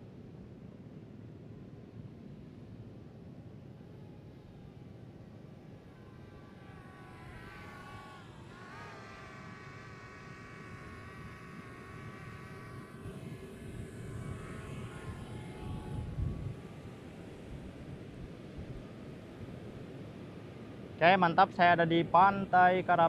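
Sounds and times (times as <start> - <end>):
wind rumble on microphone: 4.8 - 21.0
drone propellers whining: 5.6 - 19.3.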